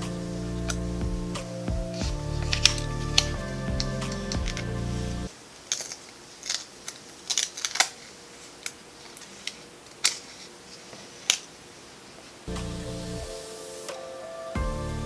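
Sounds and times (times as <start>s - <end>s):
background music: 0.0s - 5.3s, 12.5s - 15.0s
packaging clicks and crinkles: 1.9s - 12.4s.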